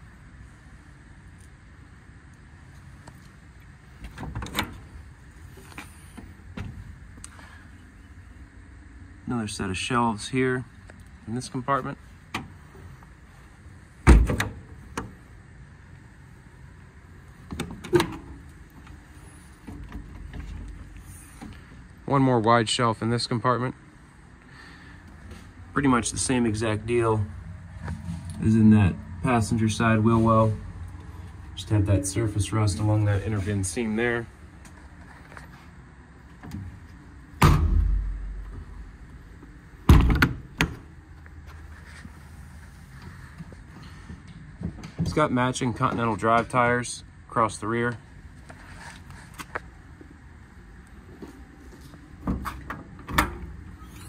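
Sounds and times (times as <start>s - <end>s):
latch clicks and clunks: 4.0s - 4.9s, 14.0s - 15.2s, 17.4s - 19.0s, 39.9s - 40.9s, 52.2s - 53.6s
metal door banging shut: 14.0s - 14.7s, 37.4s - 38.8s, 39.9s - 40.8s.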